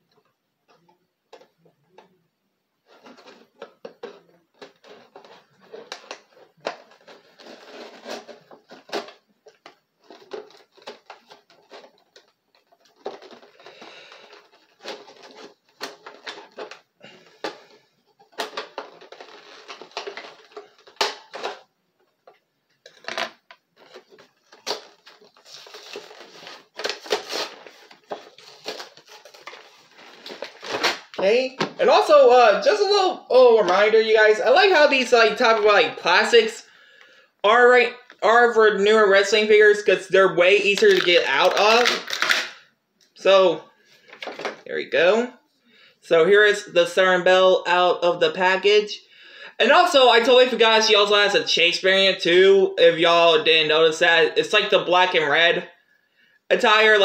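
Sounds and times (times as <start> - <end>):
cardboard and plastic crinkling: 2.8 - 36.3, 40.6 - 42.6, 44.0 - 44.7.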